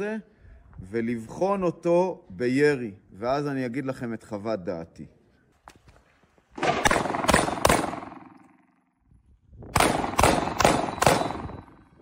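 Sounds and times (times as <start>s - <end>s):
pistol shots echoing: 6.6s - 8.7s, 9.8s - 12.0s.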